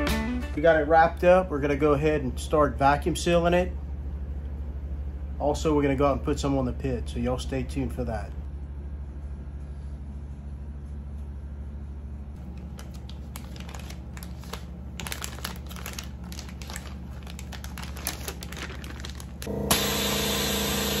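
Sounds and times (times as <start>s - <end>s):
low hum: 8.2s - 21.0s
plastic bag crinkling: 12.4s - 19.5s.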